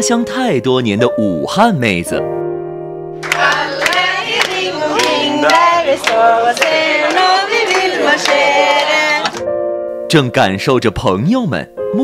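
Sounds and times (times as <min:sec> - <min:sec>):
group singing: 0:03.2 - 0:09.4
hands clapping: 0:03.2 - 0:09.5.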